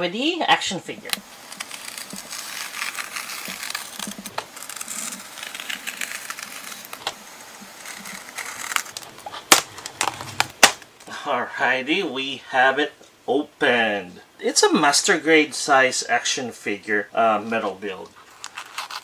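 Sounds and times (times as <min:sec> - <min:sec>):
knife slicing plastic film: 0:01.0 - 0:11.0, 0:18.3 - 0:19.0.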